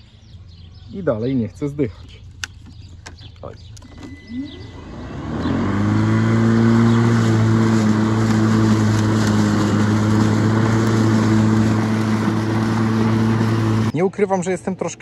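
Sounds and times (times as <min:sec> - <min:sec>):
electric lawn mower whine: 0:03.8 - 0:13.9.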